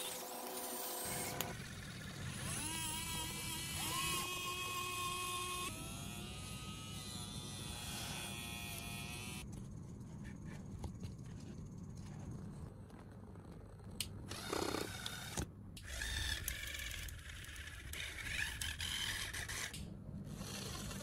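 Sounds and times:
small electric motors whining: 0.0s - 9.5s, 14.3s - 21.0s.

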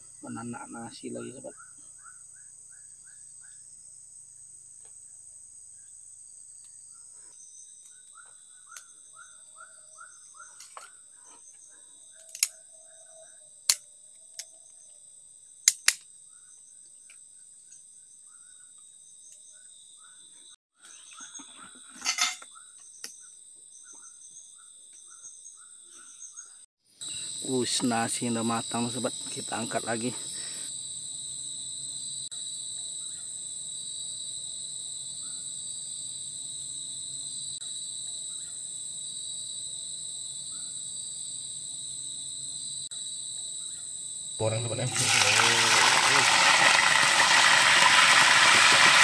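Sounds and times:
insects buzzing high: 27.0s - 49.0s.

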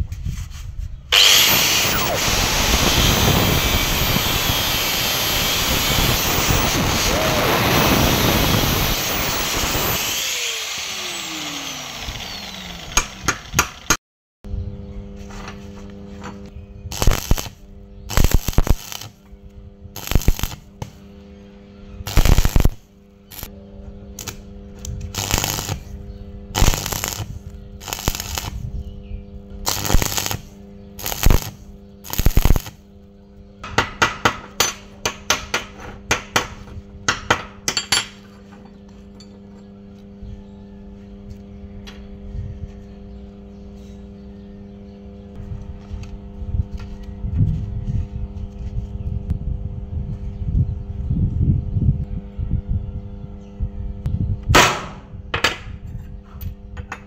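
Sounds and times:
welding arc crackle: 1.1s - 11.0s, 16.9s - 19.2s, 20.0s - 21.0s, 22.0s - 23.5s, 24.2s - 24.4s, 25.0s - 25.9s, 26.5s - 28.6s, 29.6s - 32.8s
steady hum: 1.1s - 13.2s, 14.5s - 57.0s.

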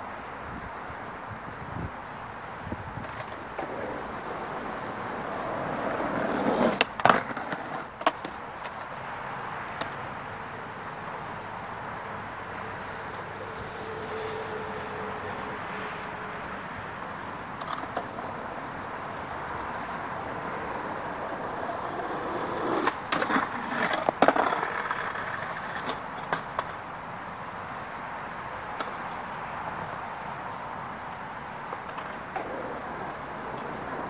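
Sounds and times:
skateboard wheels rolling on asphalt: 0.0s - 34.0s
skateboard clacking on ground: 3.0s - 9.0s, 9.7s - 10.2s, 17.6s - 26.9s, 28.7s - 29.2s, 31.5s - 34.0s.

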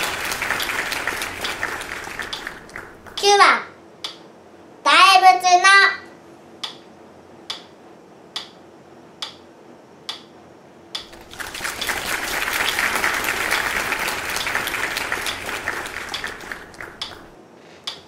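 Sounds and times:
applause: 0.0s - 3.2s, 11.0s - 17.4s.

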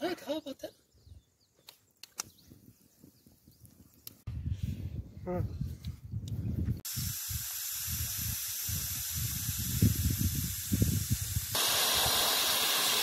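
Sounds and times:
pressure cooker steam hissing: 6.8s - 13.0s.

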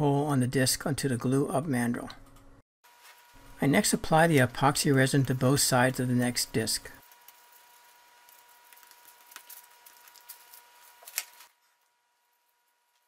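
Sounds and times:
brush dabbing handling sounds: 6.5s - 13.0s.

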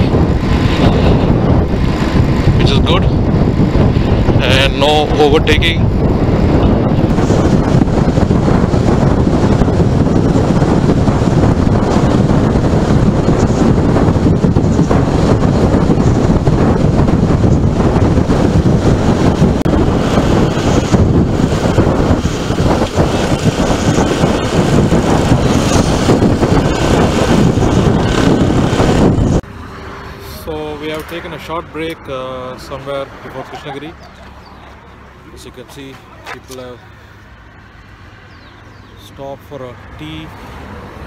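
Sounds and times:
wind buffeting microphone: 0.0s - 39.0s
motorcycle engine and road noise: 0.0s - 41.0s.

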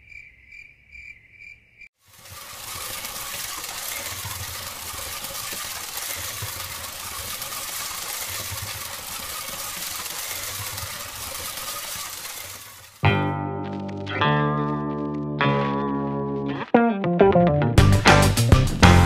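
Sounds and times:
toy train motor whirring and rattling: 2.0s - 13.0s.

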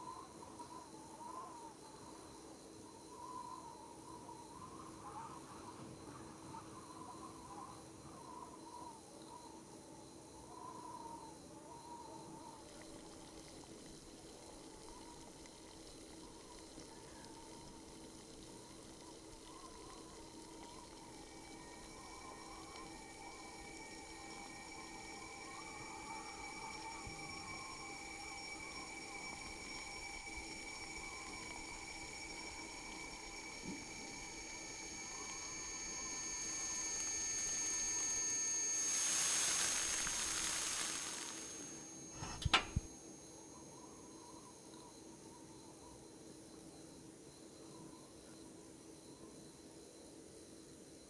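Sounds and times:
milk simmering in pot: 0.0s - 42.9s
steady hum with held tones: 0.0s - 51.0s.

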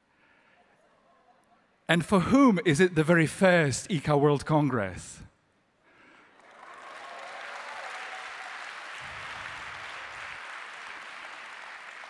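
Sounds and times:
large audience applauding: 6.2s - 12.0s.

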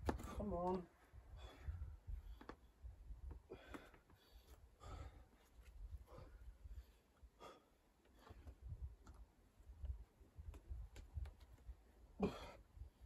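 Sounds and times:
faint breaths: 1.1s - 8.9s.

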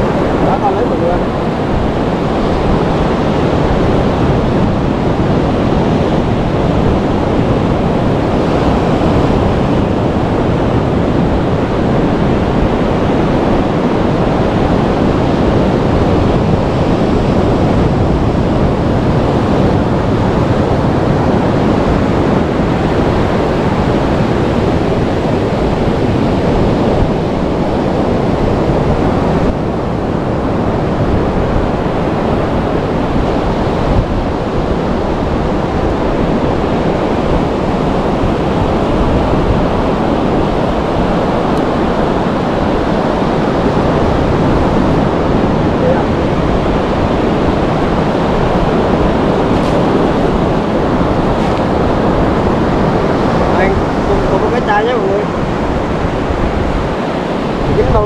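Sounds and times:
surf washing onto beach: 0.0s - 58.0s
wind on microphone: 0.0s - 58.0s.

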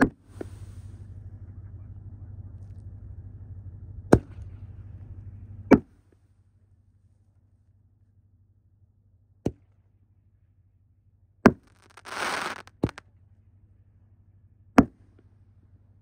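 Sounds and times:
firework shells firing from mortar: 11.6s - 13.0s
brief hiss: 11.8s - 13.0s.

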